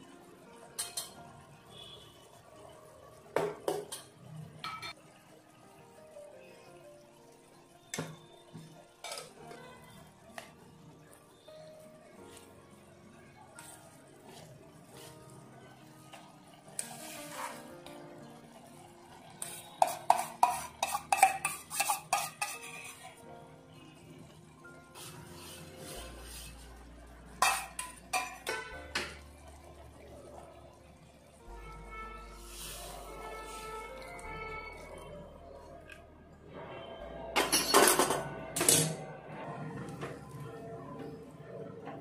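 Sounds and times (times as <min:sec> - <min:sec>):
curry bubbling in a pot: 0:00.0 - 0:23.1, 0:24.9 - 0:35.7
quiet background music: 0:00.0 - 0:42.0
kitchen utensils clinking: 0:00.7 - 0:01.2, 0:03.4 - 0:05.0, 0:09.0 - 0:09.6, 0:19.4 - 0:23.2, 0:27.3 - 0:29.2, 0:37.4 - 0:39.2
metal spoon scraping steel bowl: 0:19.4 - 0:23.2.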